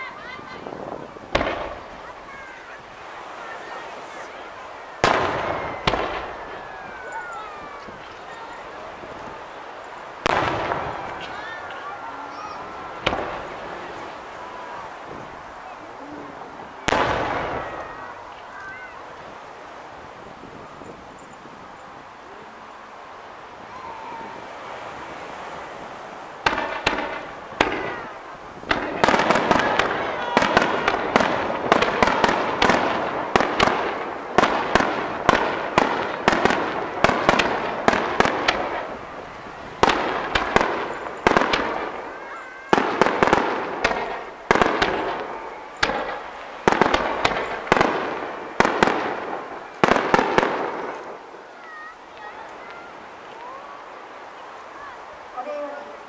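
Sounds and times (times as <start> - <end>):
fireworks bangs: 0.0 - 22.5, 23.3 - 53.9
dense rush of fireworks: 0.0 - 56.0.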